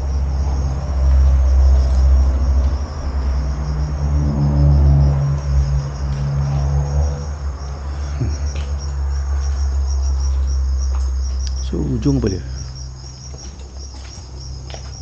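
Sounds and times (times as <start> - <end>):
crickets chirping: 0.0 - 15.0
passing vehicle engine hum: 0.0 - 15.0.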